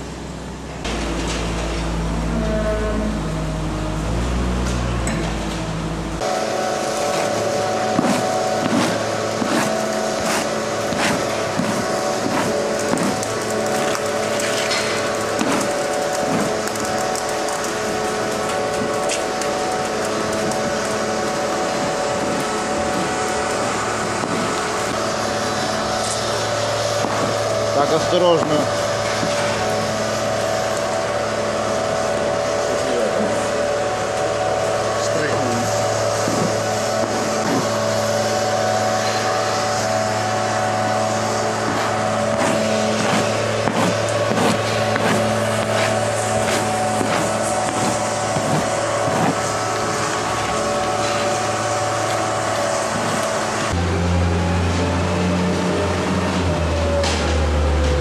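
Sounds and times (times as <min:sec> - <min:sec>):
machinery hum and whir: 0:00.0 - 0:58.0
tool scraping concrete floor: 0:04.1 - 0:17.6, 0:35.4 - 0:38.2, 0:41.1 - 0:53.7.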